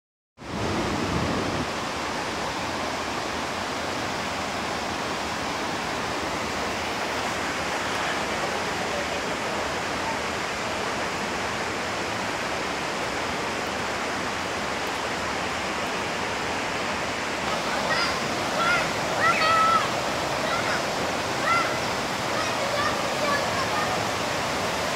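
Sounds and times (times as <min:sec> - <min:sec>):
waterfall rushing: 0:00.4 - 0:24.9.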